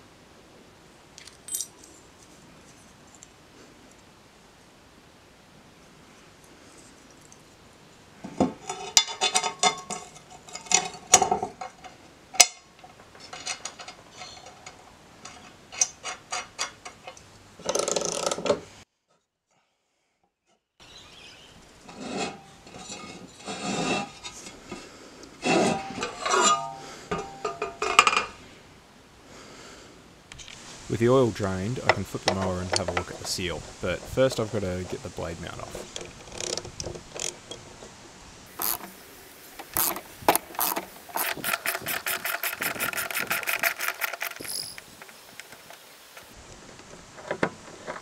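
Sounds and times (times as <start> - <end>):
metal blades clinking and scraping: 25.4 - 28.0
socket ratchet clicking: 38.6 - 38.9, 39.8 - 45.4.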